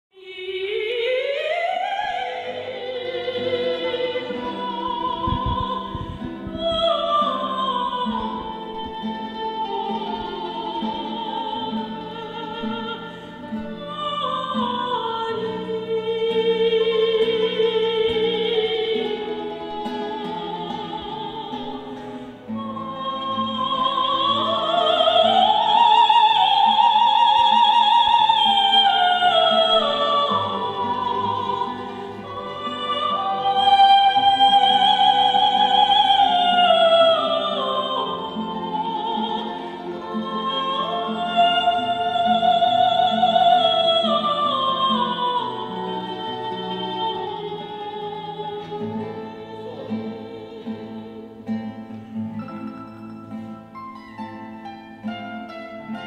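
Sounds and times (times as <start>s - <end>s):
soprano singing opera: 0.1s - 52.8s
plucked classical guitar: 0.2s - 56.0s.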